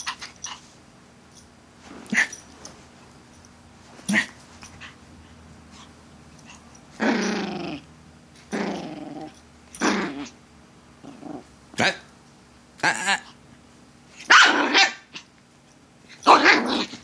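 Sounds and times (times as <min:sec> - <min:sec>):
puppy growling: 0:06.5 - 0:10.4, 0:11.0 - 0:11.5, 0:16.3 - 0:17.0.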